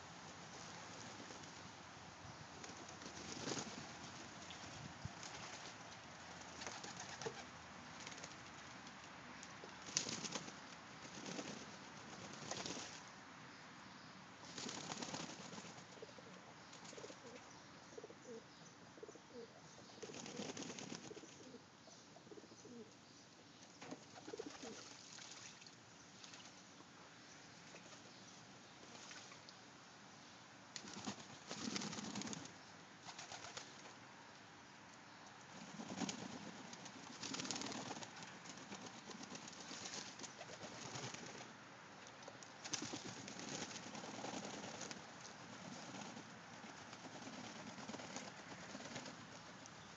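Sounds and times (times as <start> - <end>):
wings flapping and water splashing: 2.6 - 8.7, 9.8 - 13.0, 14.5 - 15.8, 24.0 - 26.6, 28.8 - 29.5, 35.7 - 41.4, 42.6 - 49.4
pigeons cooing: 16.0 - 22.9.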